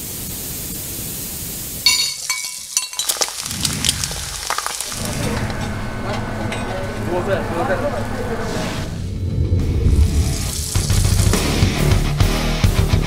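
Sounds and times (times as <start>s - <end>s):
gas blowtorch hissing: 0.0s - 1.8s, 10.0s - 12.0s
ringing metal clink: 1.9s - 3.1s
utensils clattering: 1.9s - 5.7s.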